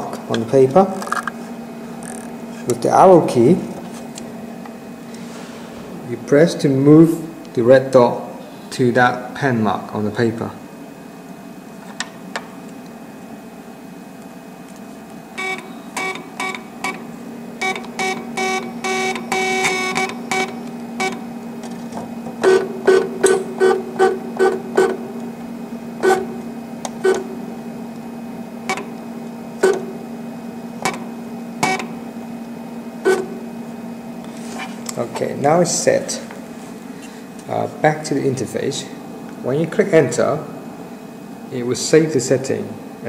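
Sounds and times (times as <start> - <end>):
steady low hum: 0.0 - 43.0
stepper motors whining: 1.9 - 2.8, 15.3 - 25.4.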